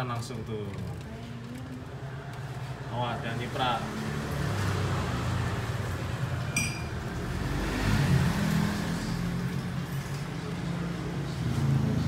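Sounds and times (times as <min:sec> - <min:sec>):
metallic clink: 0:06.5 - 0:07.0.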